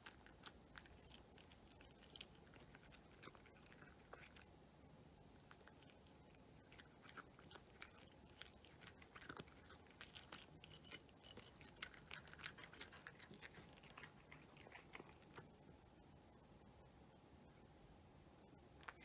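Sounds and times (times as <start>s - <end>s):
cat crunching dry kibble: 0.0s - 4.5s, 5.3s - 15.6s.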